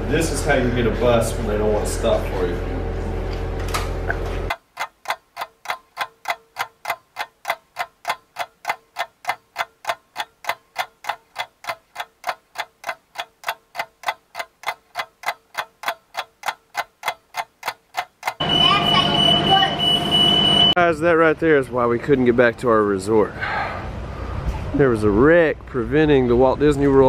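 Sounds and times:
clock ticking: 4.5 - 19.7.

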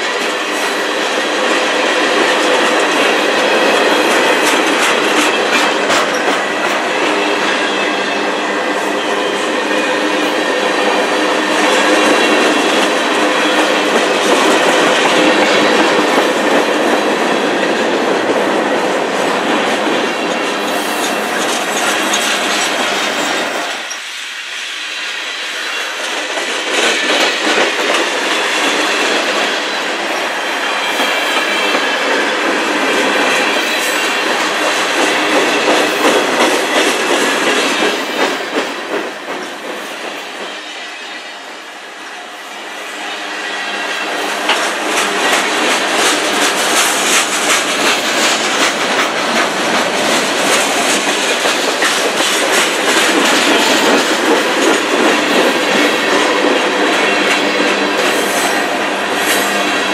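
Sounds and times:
wheels clacking over rail joints: 0.0 - 24.0, 44.2 - 59.9
freight train wheels rumbling: 0.0 - 59.9.

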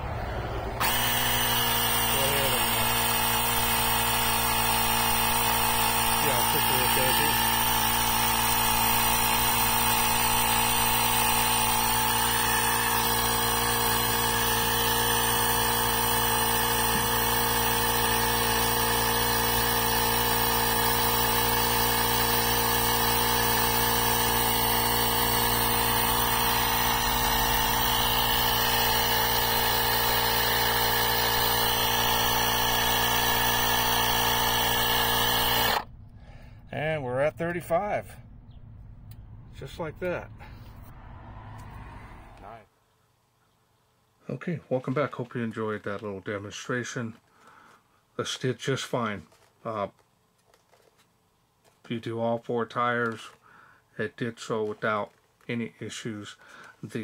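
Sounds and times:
portable air compressor running: 0.0 - 36.5.

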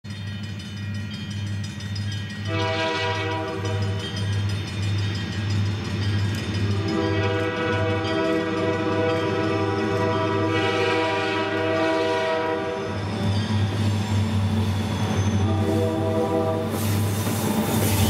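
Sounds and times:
locomotive air horn: 2.5 - 4.0, 6.7 - 12.9, 15.4 - 16.9.

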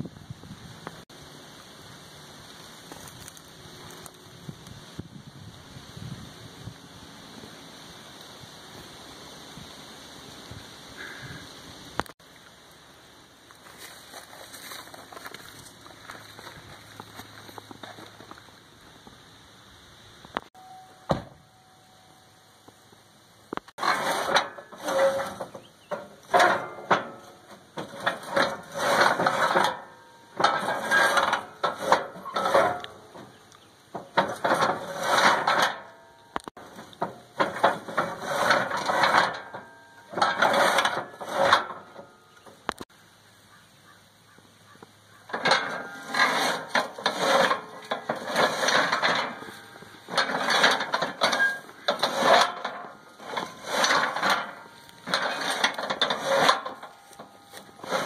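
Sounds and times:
metal gate clanking and rattling: 23.8 - 42.7, 45.2 - 58.0.

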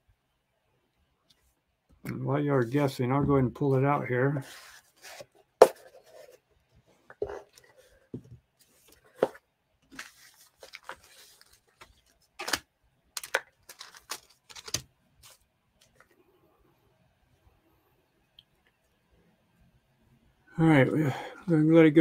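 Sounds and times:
cardboard box rustling: 8.7 - 12.0.

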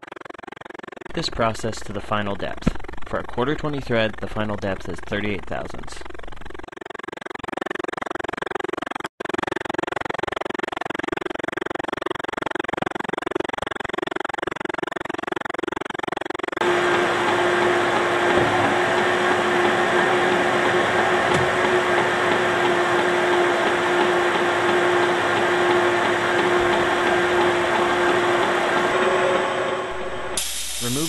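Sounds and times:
metal lathe whirring: 16.6 - 31.0.

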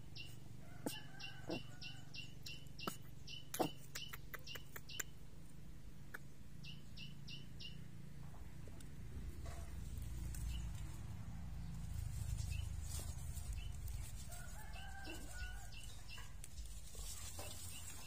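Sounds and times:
steady low rumble: 5.2 - 18.0.

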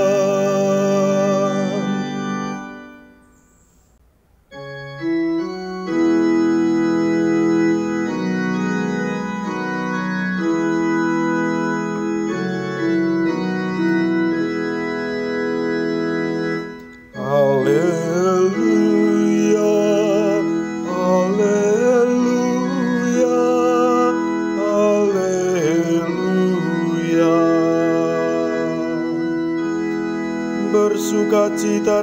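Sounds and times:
person singing: 0.0 - 2.6, 17.1 - 32.0
organ playing sustained chords: 0.0 - 32.0.

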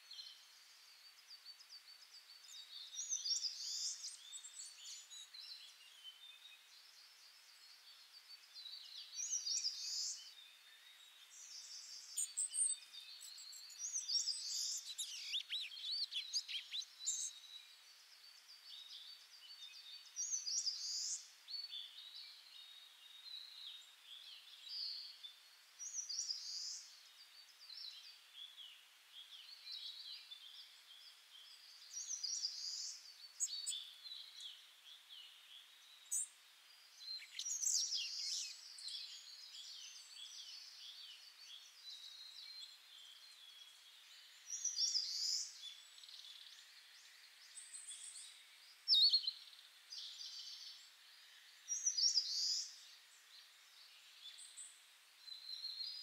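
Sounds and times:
faint steady hiss: 0.0 - 56.0
small birds chirping: 0.0 - 56.0.

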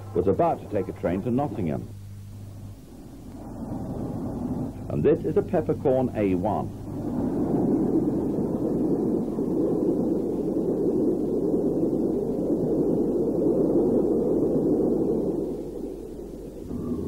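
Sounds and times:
muffled train rumble: 0.0 - 12.2, 16.6 - 17.0.

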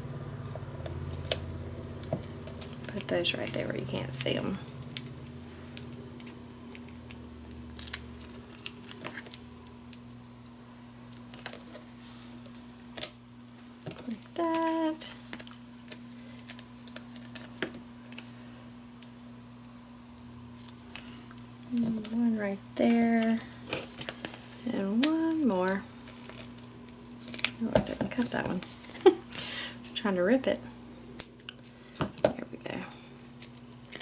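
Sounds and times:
steady low hum: 0.0 - 34.0
adhesive dots peeling and crinkling: 2.0 - 11.8, 12.5 - 22.4, 23.2 - 29.4.

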